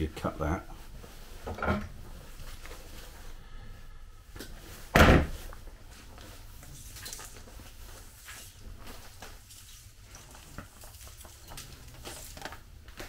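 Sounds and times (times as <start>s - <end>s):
loud thump: 4.9s - 5.4s.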